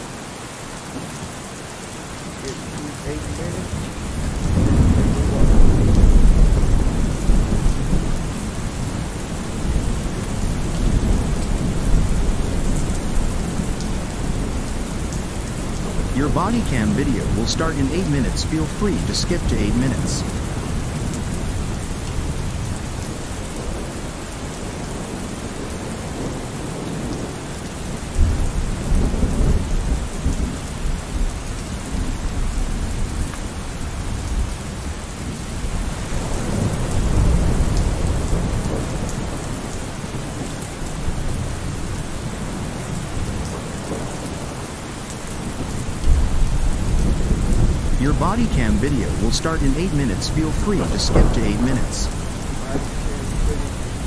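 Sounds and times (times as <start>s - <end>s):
steady rain: 0.0s - 54.0s
thunder rumbling: 3.1s - 22.5s, 45.6s - 54.0s.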